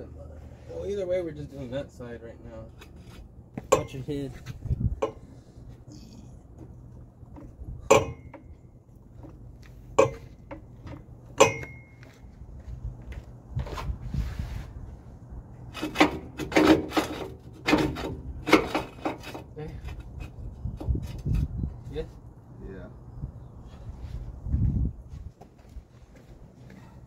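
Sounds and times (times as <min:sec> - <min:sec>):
knocks and scrapes: 0:02.7 - 0:03.8, 0:13.6 - 0:14.9, 0:15.6 - 0:22.1
metal jack stand clanking: 0:07.3 - 0:08.6, 0:09.9 - 0:12.0.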